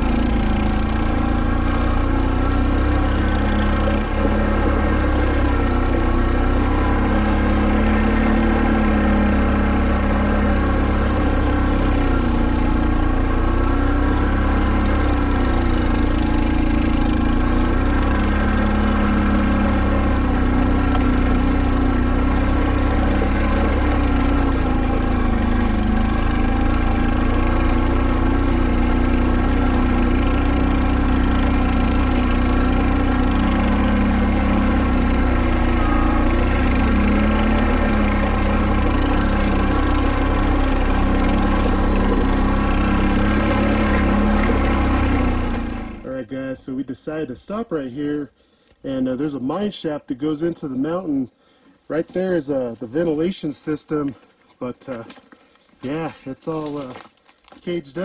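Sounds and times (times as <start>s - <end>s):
atv engine running: 0.0s - 46.6s, 50.3s - 58.0s.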